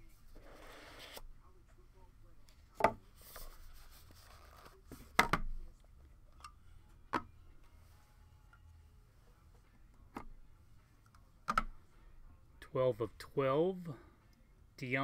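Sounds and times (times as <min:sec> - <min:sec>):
cards rubbing and shuffling: 0:00.3 - 0:01.2, 0:03.1 - 0:05.1.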